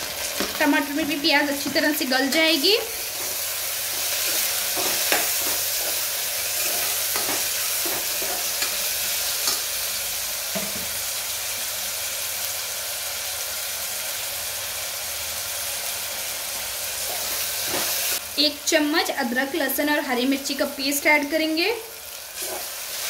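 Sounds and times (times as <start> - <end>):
onions sizzling in hot oil: 0.0 - 23.0
spoon scraping and knocking pot: 3.2 - 8.8.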